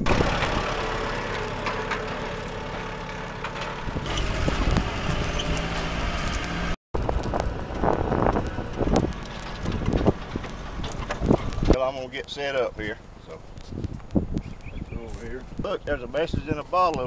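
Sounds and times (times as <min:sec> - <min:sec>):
trailer knocks: 0:00.0 - 0:12.0
tractor engine running: 0:00.0 - 0:17.0.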